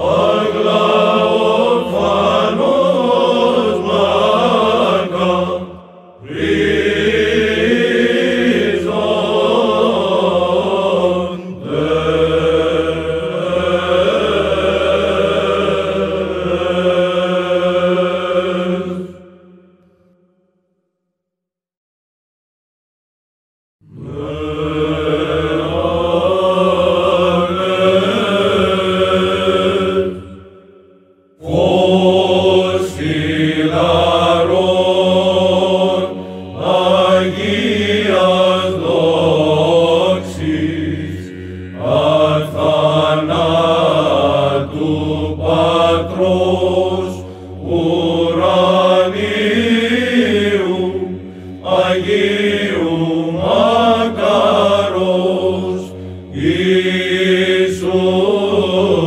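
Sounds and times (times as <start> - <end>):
choir chanting over drone: 0.0 - 20.1, 23.8 - 59.0.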